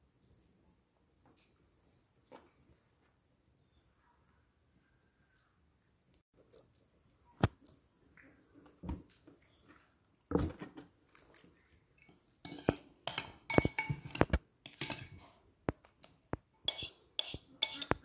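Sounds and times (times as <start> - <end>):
soft wet handling: 0.0 - 13.6
porcelain bowl clinking and scraping: 11.9 - 15.4, 16.6 - 18.0.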